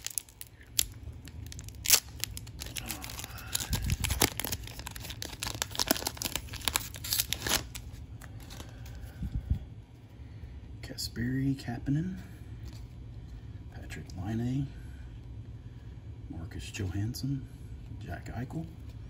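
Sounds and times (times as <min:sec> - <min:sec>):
card pack wrapper tearing and crinkling: 0:00.0 - 0:08.7.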